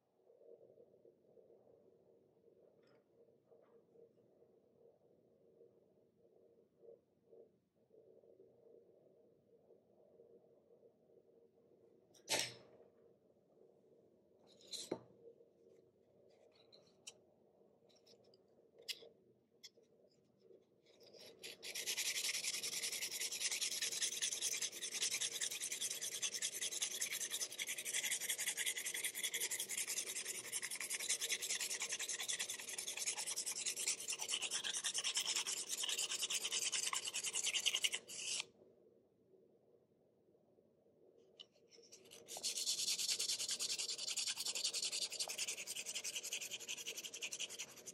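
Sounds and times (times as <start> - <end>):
pencil scratching on sandpaper: 21.3 - 38.4, 42.0 - 47.9.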